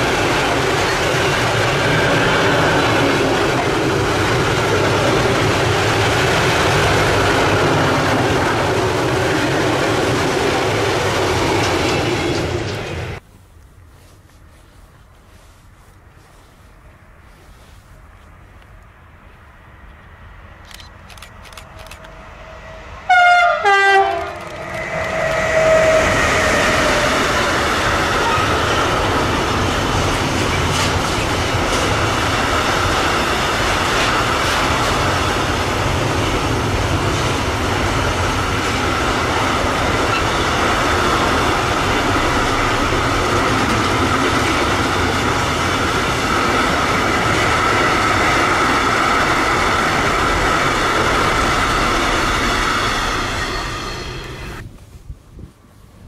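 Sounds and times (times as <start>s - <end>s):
train wheels rumbling on rails: 0.0s - 13.2s, 14.0s - 56.0s
train horn blasts: 22.4s - 27.6s.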